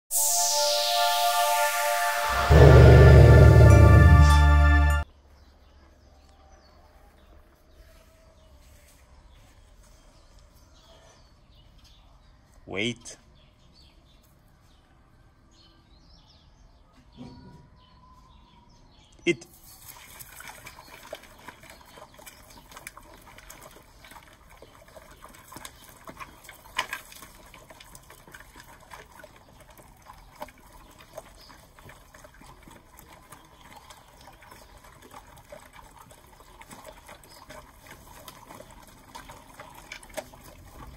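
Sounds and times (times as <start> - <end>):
puppies crunching dry kibble: 19.8 - 40.9.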